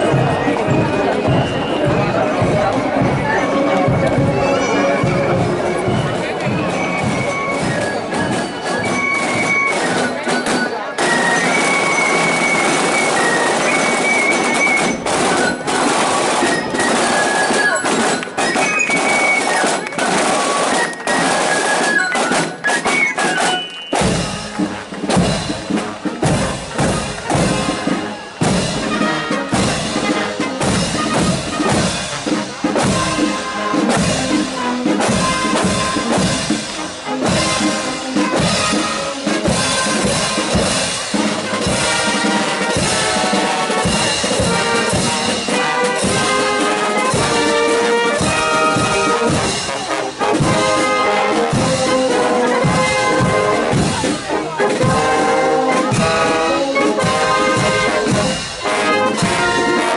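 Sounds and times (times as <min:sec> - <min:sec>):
snare drums: 0:00.0 - 0:59.9
bass drum and cymbals: 0:23.9 - 0:59.8.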